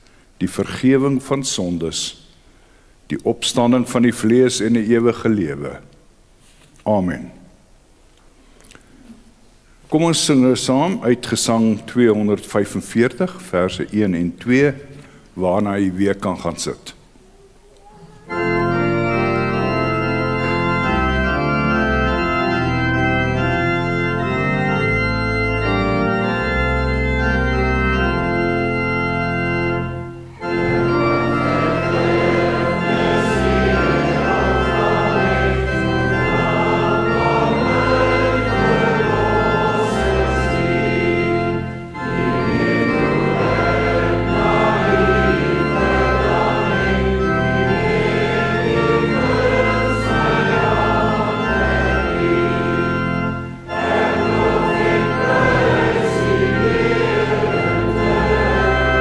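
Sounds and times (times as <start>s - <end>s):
church organ chords: 0.4s - 5.9s, 9.9s - 16.9s, 18.2s - 59.0s
congregation singing a hymn: 18.3s - 59.0s.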